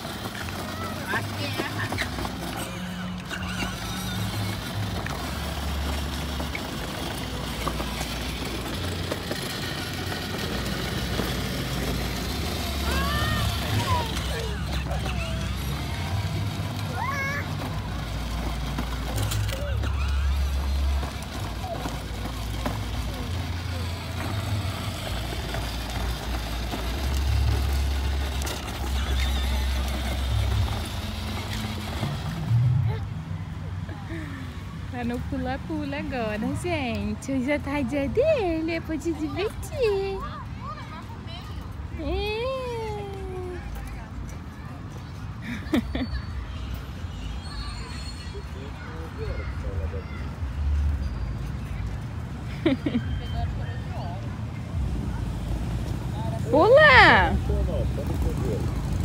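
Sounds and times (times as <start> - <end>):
plastic wheels rumbling on pavement: 0.0 - 59.0
electric motor whir: 2.3 - 32.6.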